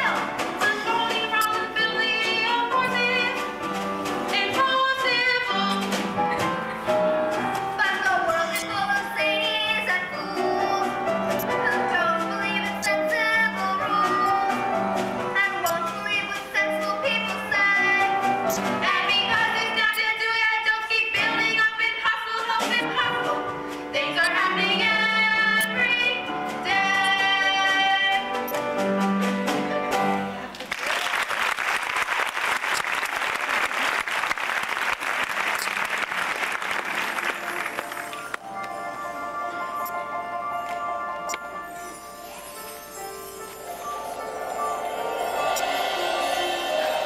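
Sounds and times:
instrumental accompaniment: 0.0s - 30.5s, 35.6s - 47.0s
girls singing: 24.0s - 28.3s, 45.2s - 47.0s
audience applauding: 30.5s - 38.4s, 45.0s - 47.0s.

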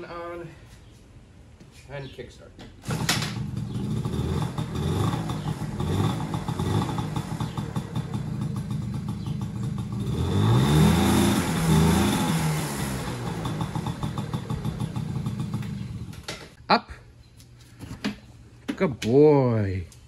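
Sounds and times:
engine revving: 2.9s - 16.3s
small two-stroke engine idling: 2.9s - 16.3s.

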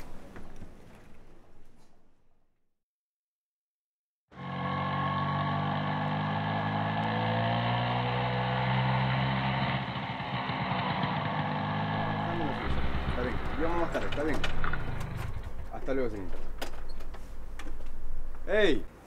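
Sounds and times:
scooter engine running: 4.3s - 18.4s.

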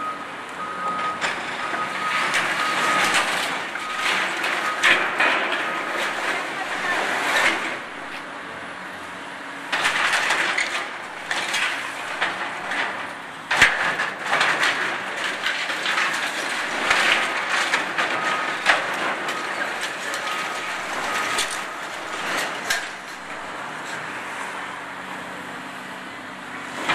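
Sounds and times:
falling debris: 1.0s - 8.0s, 9.7s - 23.6s.

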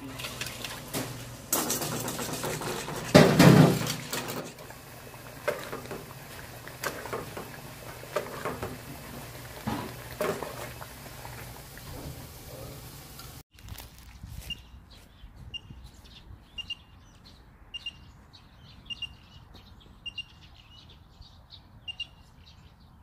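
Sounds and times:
slurry pouring and splashing into pot: 0.0s - 13.4s.

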